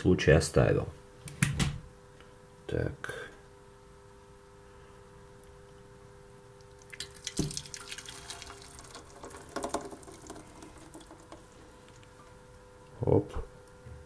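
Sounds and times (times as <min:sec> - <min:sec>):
thick puree pouring and dripping: 0:06.6 - 0:12.6.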